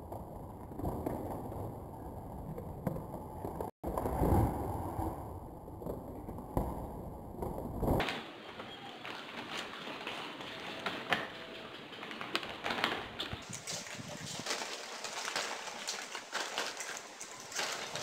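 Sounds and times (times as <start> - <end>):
plastic chip bag crinkling: 8.7 - 18.0.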